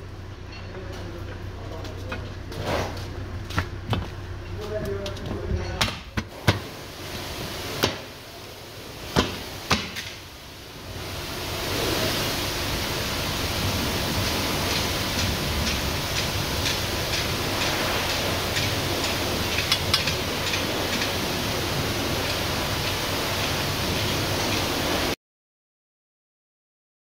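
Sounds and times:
steady rushing hiss: 6.2 - 25.2.

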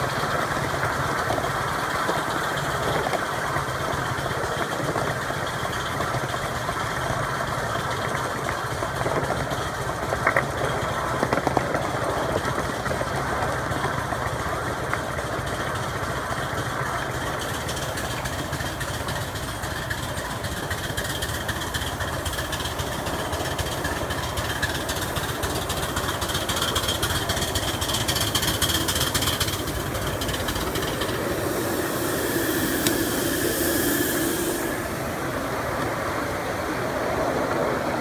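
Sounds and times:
miniature train running: 0.0 - 38.0
wheels clattering on rails: 0.0 - 38.0.

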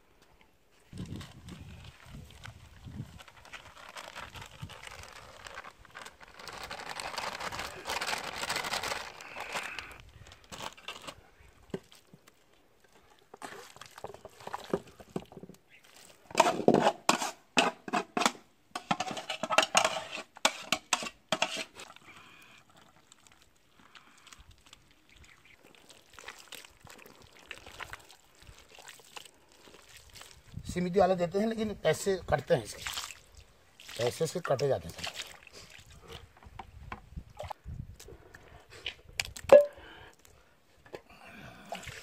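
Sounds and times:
wet squelching and slapping: 1.0 - 15.1, 22.7 - 30.6, 32.6 - 36.3, 38.8 - 39.6.

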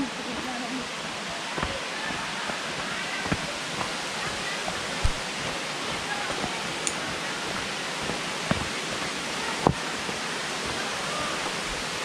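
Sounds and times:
footsteps on dirt trail: 0.0 - 12.0
waterfall rushing: 0.0 - 12.0.

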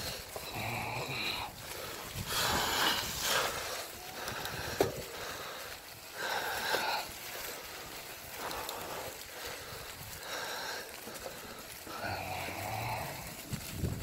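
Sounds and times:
person breathing hard: 0.0 - 13.4.

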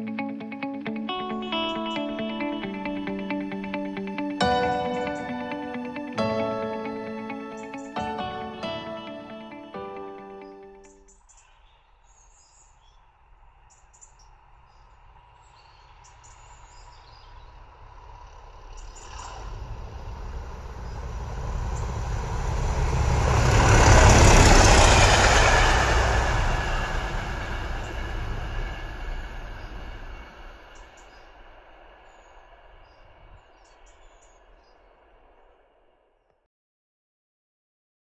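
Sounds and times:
diesel locomotive engine rumble: 14.3 - 35.6.

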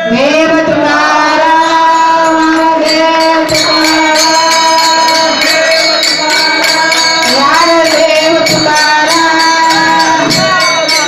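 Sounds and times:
devotional singing long note: 0.0 - 11.0
hand cymbals clashing: 2.2 - 11.0.

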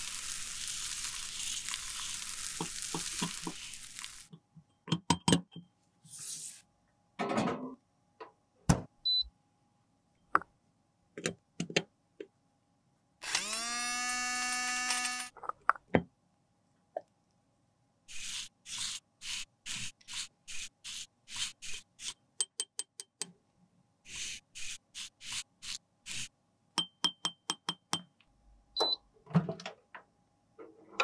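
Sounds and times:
brush sweeping powder through sieve: 6.1 - 6.7
small electric grinder whirring: 13.2 - 15.3.

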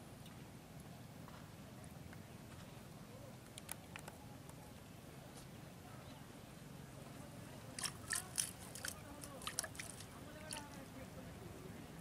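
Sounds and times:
faint clicks: 3.4 - 4.6
splashing in shallow water: 7.6 - 11.0.

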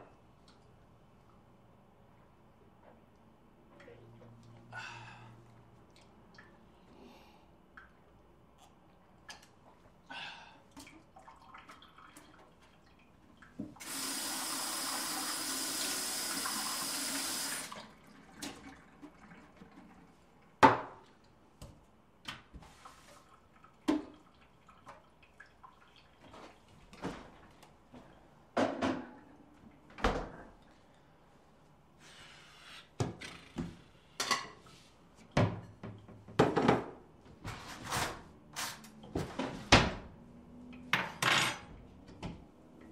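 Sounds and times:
knocks and clunks at sink: 28.6 - 29.1, 35.3 - 37.0.

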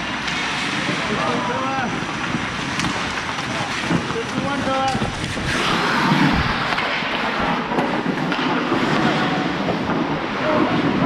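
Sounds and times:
skate blades scraping ice: 0.0 - 11.0
wind rushing over camera: 5.0 - 7.1.

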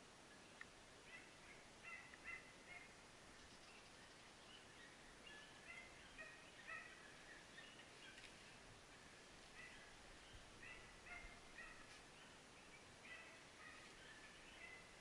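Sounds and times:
faint dogs barking: 1.0 - 3.0, 5.2 - 7.3, 9.4 - 15.0.

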